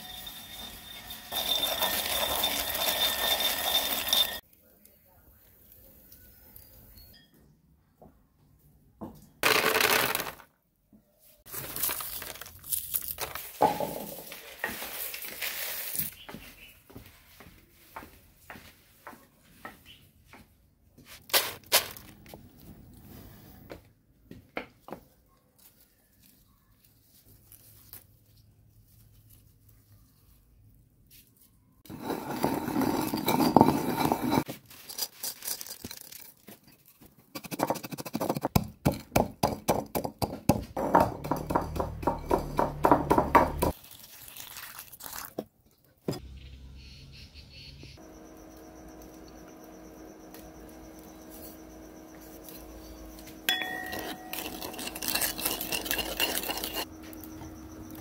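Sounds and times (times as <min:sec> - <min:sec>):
pestle grinding in clay mortar: 0:00.0 - 0:04.4, 0:31.9 - 0:36.3, 0:37.0 - 0:43.8, 0:50.6 - 0:58.0.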